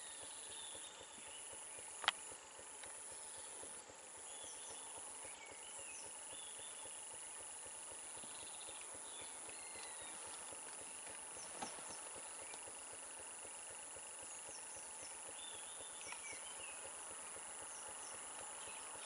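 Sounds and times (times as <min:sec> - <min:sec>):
insect drone: 0:00.0 - 0:19.0
bird chirps: 0:03.1 - 0:12.8, 0:14.2 - 0:19.0.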